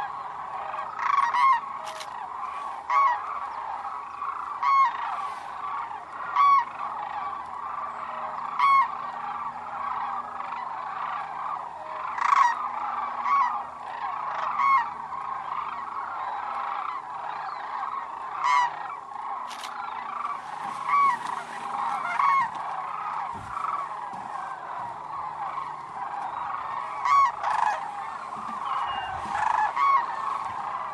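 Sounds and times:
flock of cranes calling: 0:00.0 - 0:30.9
nearby crane calls: 0:00.0 - 0:30.9.

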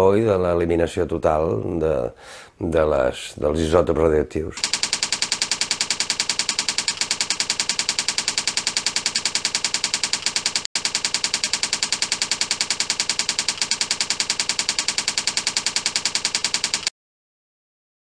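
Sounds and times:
typewriter keystrokes clicking: 0:04.6 - 0:16.9.

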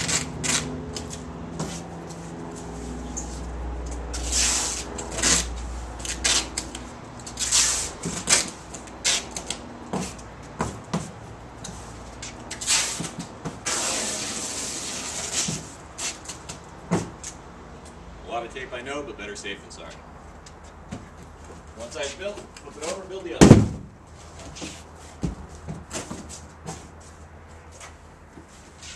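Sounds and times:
packing tape ripping off roll: 0:00.0 - 0:01.2, 0:04.2 - 0:06.7, 0:07.3 - 0:09.5, 0:12.5 - 0:16.2.

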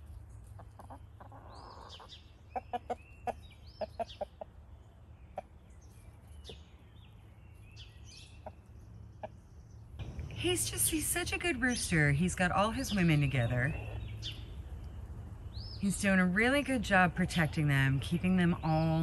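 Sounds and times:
chickens clucking: 0:00.0 - 0:06.6, 0:08.2 - 0:10.2, 0:13.1 - 0:15.4.

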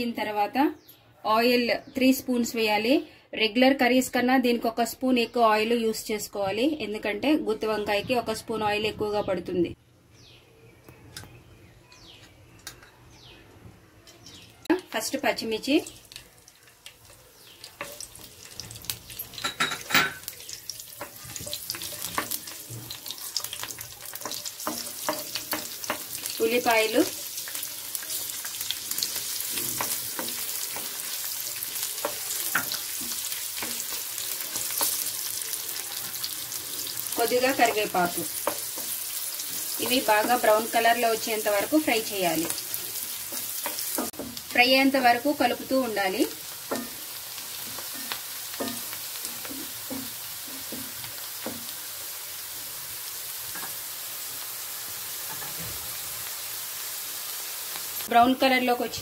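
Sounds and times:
onions sizzling in hot oil: 0:14.1 - 0:59.0
spatula scraping and tapping pan: 0:15.8 - 0:44.5, 0:46.5 - 0:51.8
wooden spatula tapping a pan: 0:21.0 - 0:26.3, 0:37.5 - 0:39.0, 0:39.6 - 0:44.5, 0:46.6 - 0:51.8.

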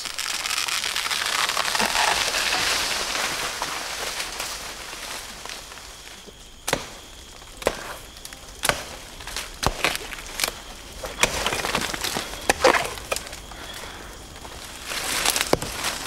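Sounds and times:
blade chopping palm trunk: 0:06.6 - 0:07.0, 0:08.6 - 0:13.4, 0:15.3 - 0:16.0.

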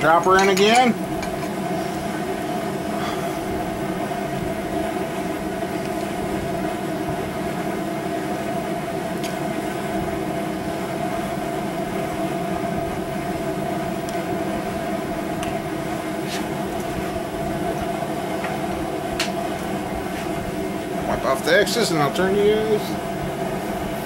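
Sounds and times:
steady mechanical hum: 0:00.0 - 0:24.0.

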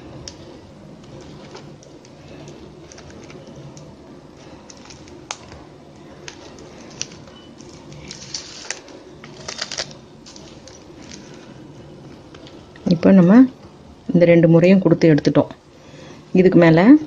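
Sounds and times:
steady low hum: 0:00.0 - 0:17.0
plastic strands rustling and clicking: 0:01.0 - 0:11.5.

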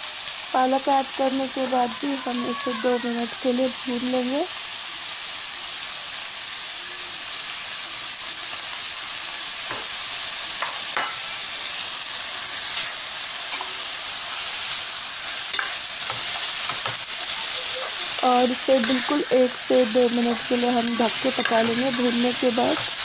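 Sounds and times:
spinach sizzling in hot oil: 0:00.0 - 0:23.0
spatula scraping and tapping pan: 0:10.6 - 0:11.2, 0:15.5 - 0:17.1.

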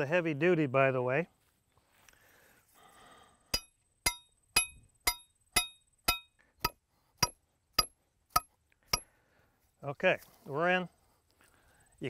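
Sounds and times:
hammer striking metal rod: 0:03.5 - 0:09.1.

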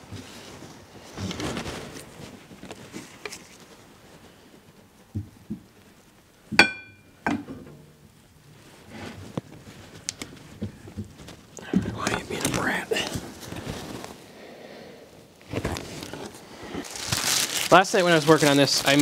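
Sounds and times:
metal-on-metal clink: 0:06.6 - 0:07.1.

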